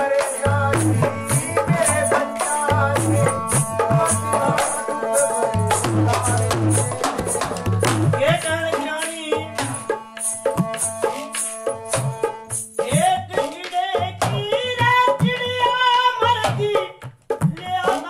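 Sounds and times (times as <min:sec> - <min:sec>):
hand drum rhythm: 0:00.0 - 0:18.0.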